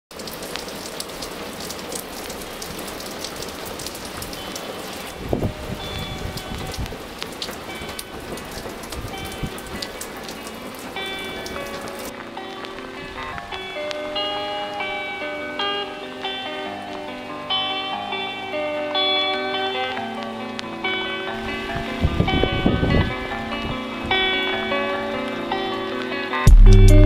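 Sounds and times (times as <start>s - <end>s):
water dripping off overhang: 0.1s - 21.5s
steady rain: 0.1s - 27.0s
soft music notes: 4.3s - 27.0s
heavy low thump: 26.5s - 27.0s.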